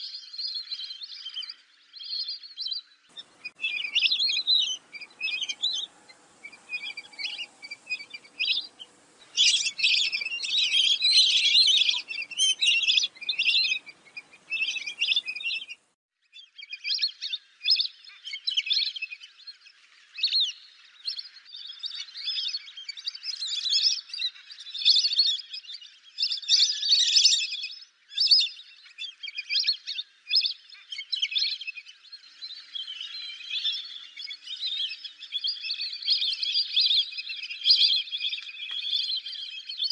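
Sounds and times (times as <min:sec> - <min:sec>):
ducks whistling chirps: 0:03.1 - 0:15.9.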